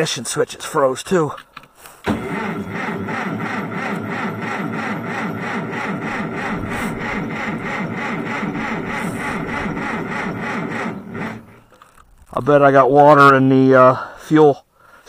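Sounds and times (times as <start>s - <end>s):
starter cranking engine: 2.0s - 12.1s.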